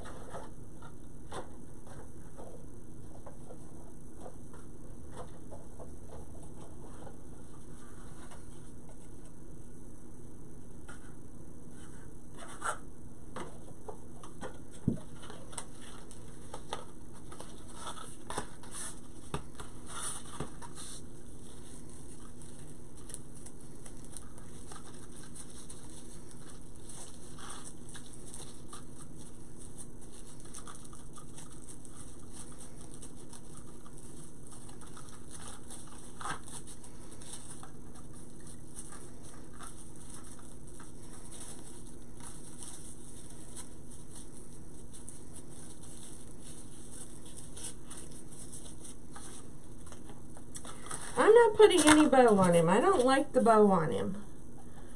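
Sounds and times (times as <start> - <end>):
steady low hum: 0.0 - 54.9
ribbon rustling and crinkling: 14.8 - 53.2.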